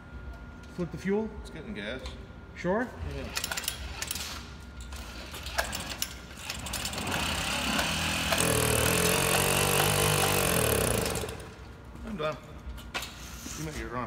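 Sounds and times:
moped engine buzzing: 6.5 - 11.6.

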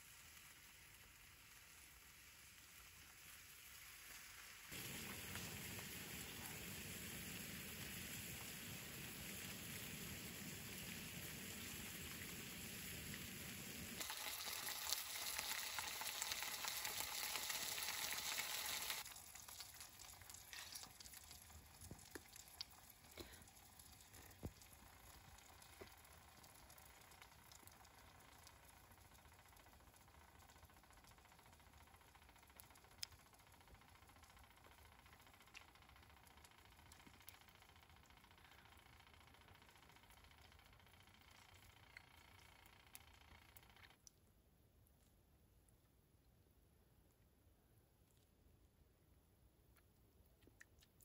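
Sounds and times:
food sizzling in a frying pan: 0.0 - 24.4
wood fire crackling: 0.0 - 43.1.

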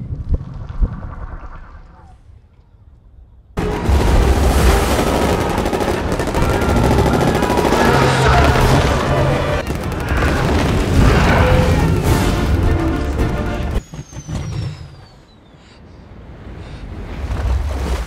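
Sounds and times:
background music: 3.6 - 13.8
booms: 3.6 - 13.8
rapid gunfire: 3.6 - 13.8.

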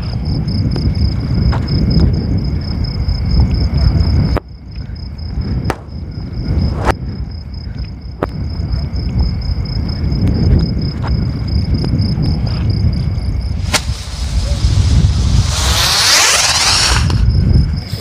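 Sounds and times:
crickets chirping: 0.0 - 18.0
wind rumble on microphone: 0.0 - 18.0
sharp cracks: 13.6 - 17.4
rising whoosh: 13.6 - 18.0.

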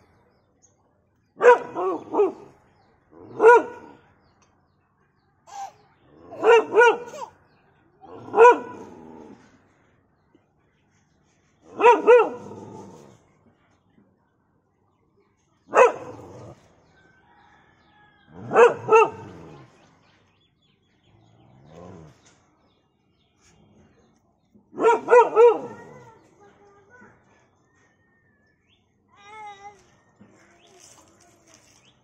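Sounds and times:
dog barking: 1.4 - 2.6, 3.3 - 4.0, 6.3 - 7.3, 8.1 - 8.9, 11.7 - 12.5, 15.7 - 16.4, 18.4 - 19.4, 24.7 - 26.1.

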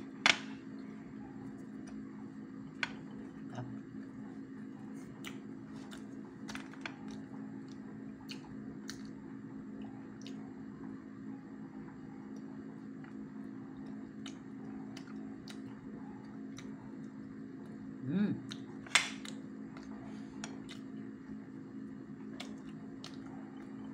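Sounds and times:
steady low hum: 0.0 - 23.9
person chewing wetly: 5.2 - 6.1, 7.0 - 9.2, 13.8 - 15.8, 18.4 - 21.0, 22.2 - 23.9.

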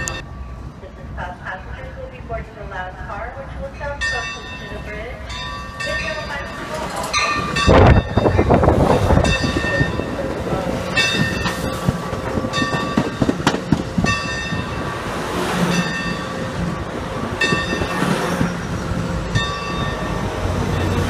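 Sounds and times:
train cars rumbling past: 0.0 - 21.0
wheels clacking over rail: 8.9 - 14.8.

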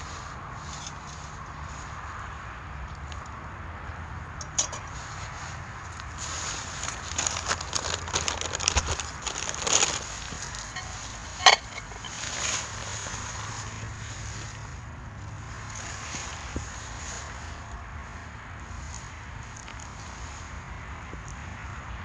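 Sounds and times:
paper rustling and crackling: 6.2 - 13.4.

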